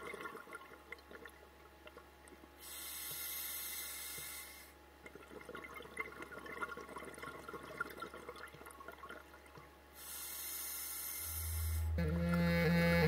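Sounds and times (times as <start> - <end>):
regulator inhale hiss: 2.6 - 4.8, 10.0 - 12.0
low music drone: 11.3 - 13.0.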